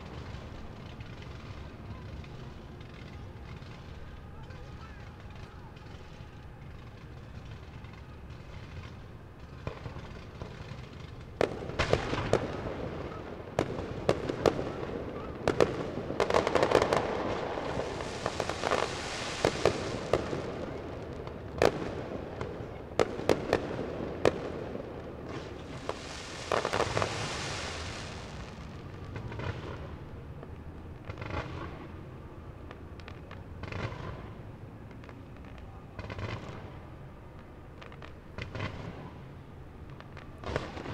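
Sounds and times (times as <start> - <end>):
fireworks bursting bangs: 5.0 - 32.0, 40.1 - 40.9
fireworks hiss: 16.4 - 20.8, 25.3 - 29.4.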